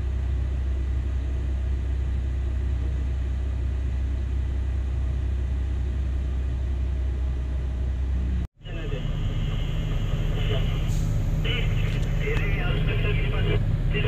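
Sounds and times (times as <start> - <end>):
heavy diesel engine droning: 0.0 - 14.0
truck idling: 0.0 - 14.0.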